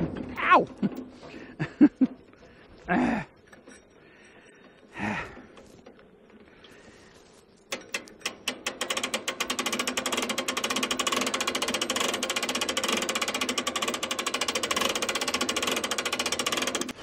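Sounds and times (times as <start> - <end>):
engine starting: 7.8 - 17.0.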